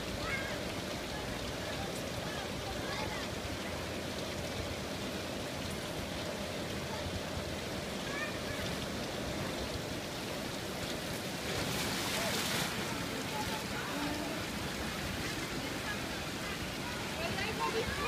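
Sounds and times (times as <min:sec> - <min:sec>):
water running and splashing: 0:00.0 - 0:18.0.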